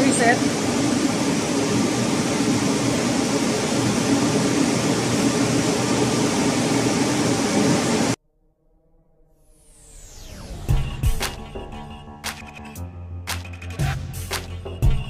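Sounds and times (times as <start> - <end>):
low hum: 0.0 - 12.7
ship machinery drone: 0.0 - 13.0.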